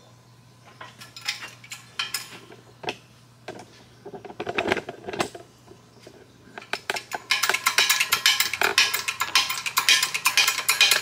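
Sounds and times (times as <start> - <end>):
metal tooling clicks and clinks: 0.8 - 2.4, 6.6 - 11.0.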